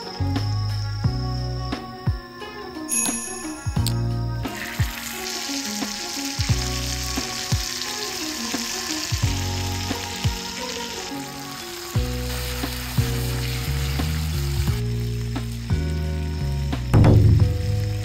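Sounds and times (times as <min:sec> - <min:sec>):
meat sizzling in hot oil: 0:04.5 - 0:18.0.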